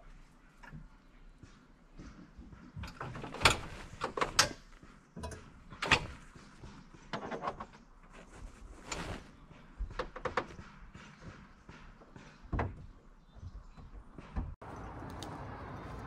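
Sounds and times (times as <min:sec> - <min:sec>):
irregular knocks and clunks: 0:00.6 - 0:07.9, 0:09.6 - 0:14.6.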